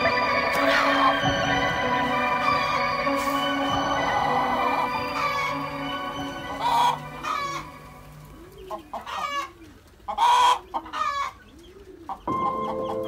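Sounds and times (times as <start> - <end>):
hen clucking: 0.0 - 13.0.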